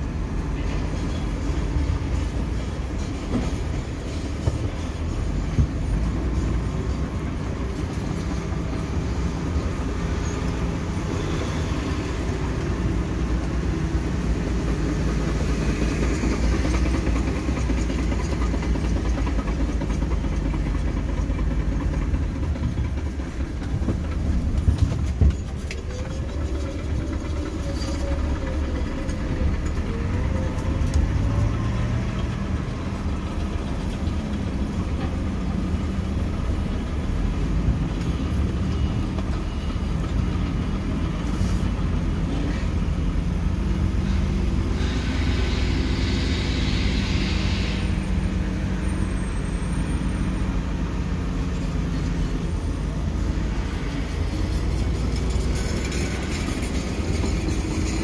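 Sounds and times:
diesel engine rumbling: 0.0s - 58.0s
hiss: 44.0s - 49.2s.

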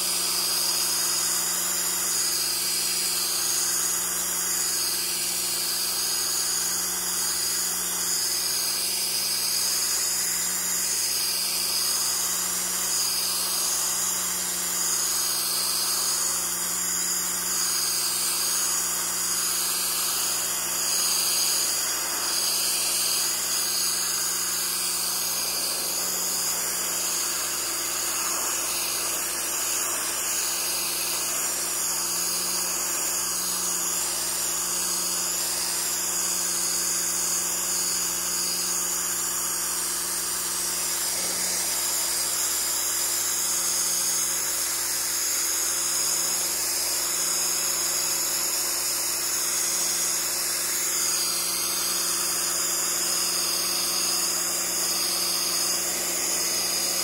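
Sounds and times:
pressure washer humming: 7.2s - 36.1s, 40.2s - 43.6s, 50.2s - 57.0s.

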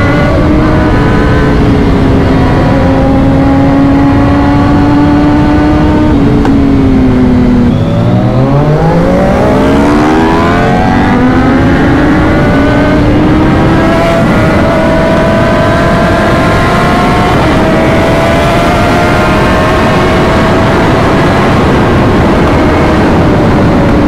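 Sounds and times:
motorcycle engine accelerating: 0.0s - 24.0s
wind rushing: 0.0s - 24.0s.

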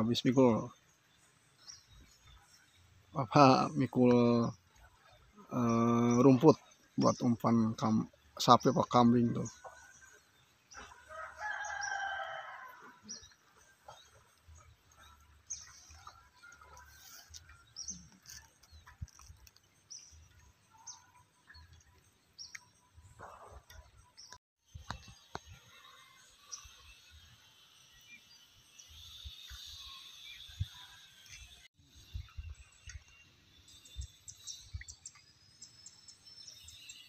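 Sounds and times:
rooster crowing: 11.0s - 13.0s.

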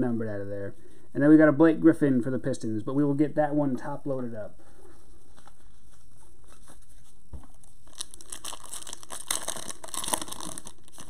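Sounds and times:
foil card pack crinkling and tearing: 7.8s - 11.0s.

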